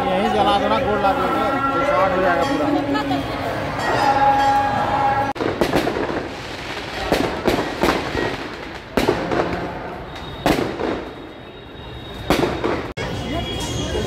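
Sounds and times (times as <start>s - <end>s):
crowd din: 0.0s - 11.2s
firecrackers banging: 5.3s - 11.4s, 12.1s - 13.0s.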